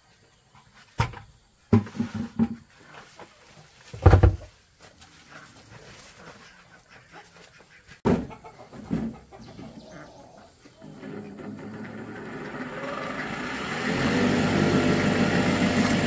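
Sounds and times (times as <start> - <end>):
chickens clucking: 4.8 - 13.4.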